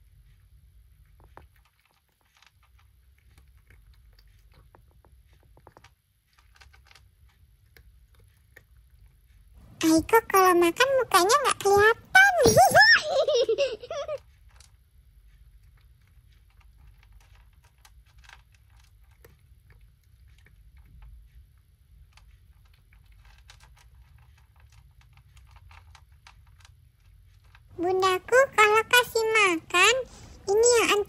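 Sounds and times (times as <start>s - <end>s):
kitten crunching dry kibble: 0.0s - 9.8s, 14.2s - 29.1s
low room hum: 0.0s - 31.0s.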